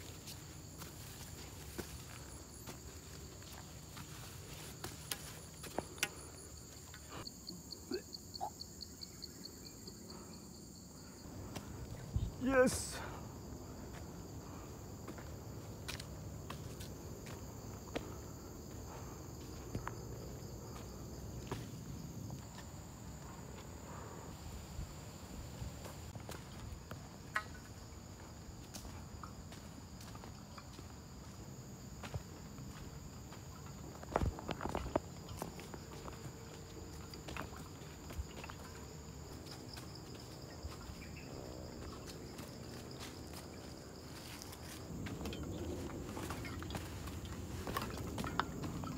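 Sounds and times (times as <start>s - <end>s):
footsteps on dry leaves: 0.0s - 5.7s
footsteps on dirt trail: 0.0s - 7.3s, 11.2s - 24.2s, 25.6s - 48.9s
insect drone: 0.0s - 48.9s.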